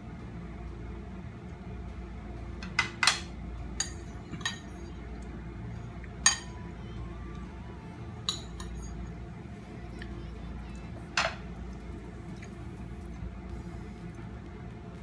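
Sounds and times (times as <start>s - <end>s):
low steady hum: 0.0s - 15.0s
spoon clinking against bowl: 2.6s - 4.9s, 6.2s - 6.5s, 8.3s - 9.0s.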